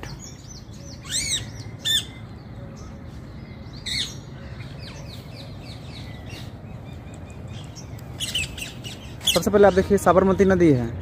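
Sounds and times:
faint high chirping calls: 0.0 - 10.5
parakeets squawking: 0.8 - 2.2, 3.8 - 10.2.

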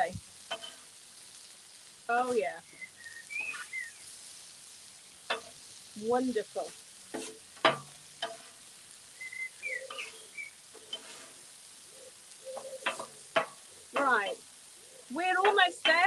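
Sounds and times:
vegetables sizzling on a griddle: 0.0 - 16.0
spatula clacking on steel: 0.5 - 0.8, 5.2 - 5.6, 7.1 - 8.7, 12.6 - 14.2
metal spatulas scraping: 7.1 - 8.6, 10.8 - 11.4.

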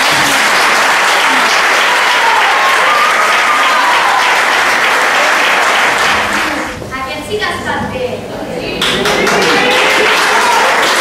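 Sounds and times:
audience applauding: 0.0 - 6.8, 8.8 - 11.0
faint cheer: 0.0 - 6.8, 9.2 - 11.0.

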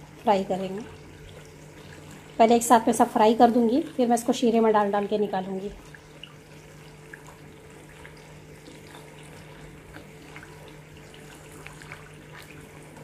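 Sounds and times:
dough sizzling in hot oil: 0.0 - 13.0
low steady hum: 0.0 - 13.0.

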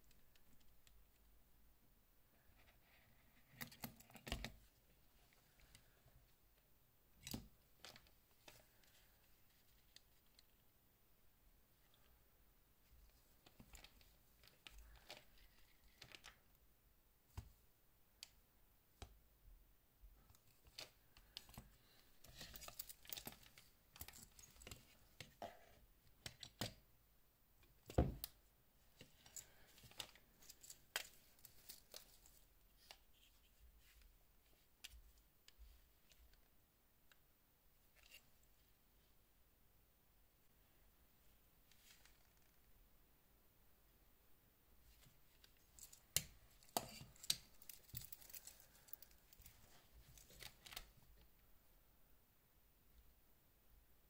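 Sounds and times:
cloth gloves rustling: 28.8 - 36.3, 44.8 - 51.1.

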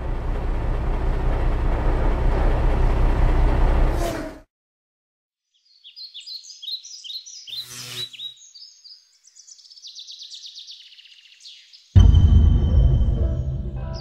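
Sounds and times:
small bird chirping and trilling: 5.4 - 12.0.

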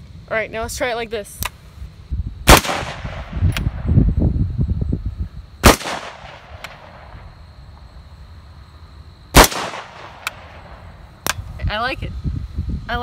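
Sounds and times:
rifle shots: 2.5 - 3.8, 5.6 - 7.1, 9.3 - 10.7.

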